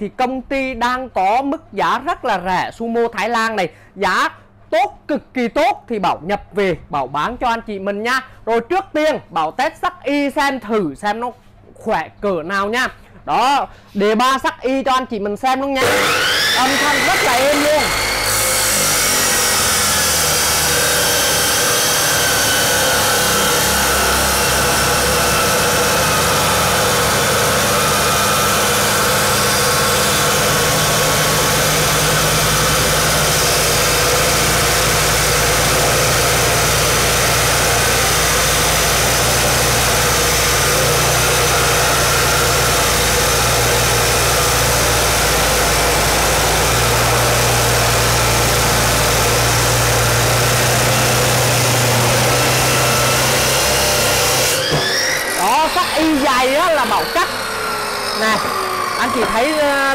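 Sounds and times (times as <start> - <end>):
cut-off saw grinding steel: 15.8 - 59.9.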